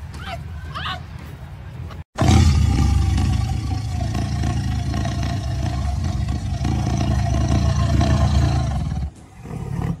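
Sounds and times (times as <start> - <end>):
tiger growling: 2.2 - 10.0.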